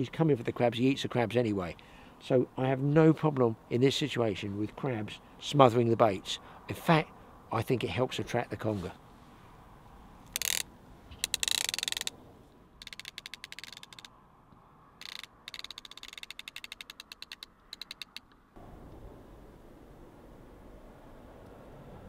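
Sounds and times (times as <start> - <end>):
reel rasp: 10.3 - 12.1, 12.8 - 14.1, 15.0 - 18.3
fishing reel ratchet clicking: 10.3 - 12.2, 12.8 - 14.1, 15.0 - 18.4.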